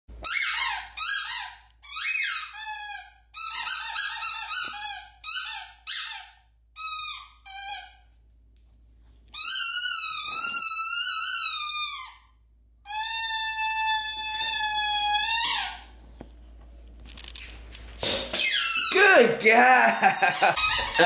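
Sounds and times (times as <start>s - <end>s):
squeaky dog toy squeaks: 0.2s - 8.0s, 9.3s - 15.9s, 18.3s - 19.0s, 20.6s - 21.0s.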